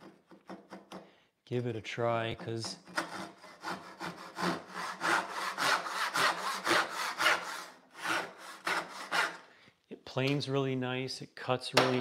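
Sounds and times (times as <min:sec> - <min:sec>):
backsaw cutting wood: 0:02.8 - 0:09.5.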